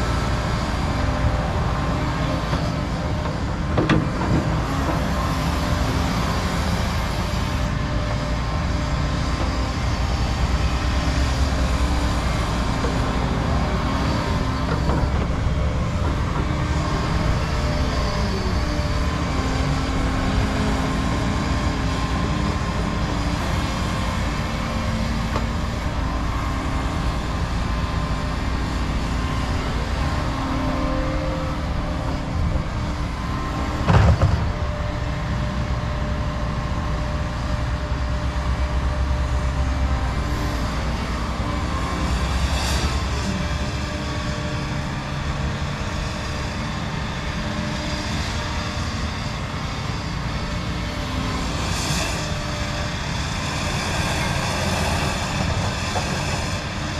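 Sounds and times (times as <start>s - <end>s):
excavator engine drone: 0.0s - 56.9s
loud clunk: 33.9s - 34.5s.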